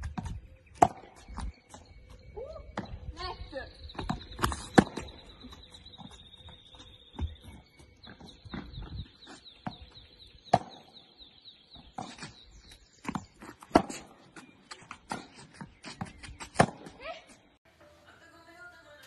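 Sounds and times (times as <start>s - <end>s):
high warbling chirp: 0.5s - 12.9s
tennis ball hit by rackets: 10.5s - 10.9s, 13.1s - 14.1s, 15.1s - 17.0s.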